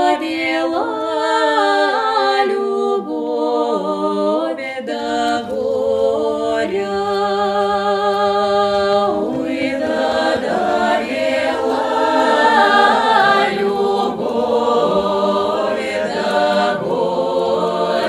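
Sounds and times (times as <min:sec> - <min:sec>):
unaccompanied folk song by several voices: 0:00.0 - 0:18.0.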